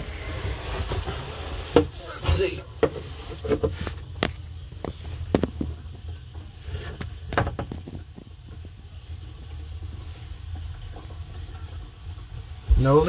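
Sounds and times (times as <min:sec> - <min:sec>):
knocks and scrapes in cabinet: 0:00.6 - 0:05.8, 0:07.3 - 0:08.2.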